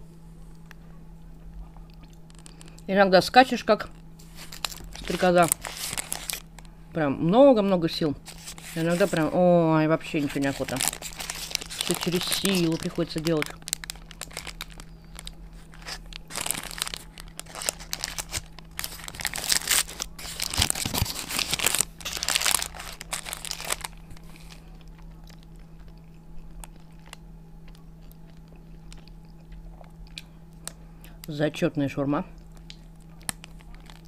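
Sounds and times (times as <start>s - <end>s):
paper wrapper crinkling and tearing: 2.2s - 2.7s, 4.2s - 6.7s, 8.2s - 9.4s, 10.0s - 25.6s, 32.6s - 34.0s
faint chewing clicks: 24.6s - 31.3s.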